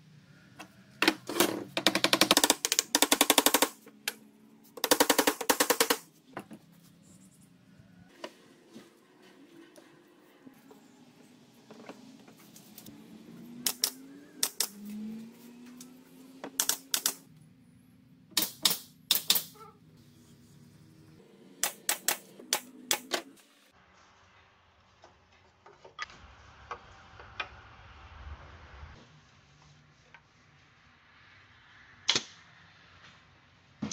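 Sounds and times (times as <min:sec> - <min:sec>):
nail gun snapping shots: 0:18.4 - 0:19.5.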